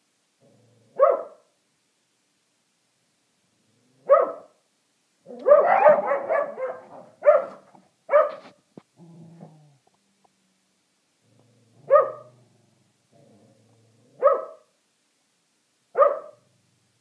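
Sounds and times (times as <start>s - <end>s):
dogs barking: 1.0s - 1.4s, 4.0s - 4.5s, 5.3s - 8.5s, 11.8s - 12.3s, 14.2s - 14.7s, 16.0s - 16.5s.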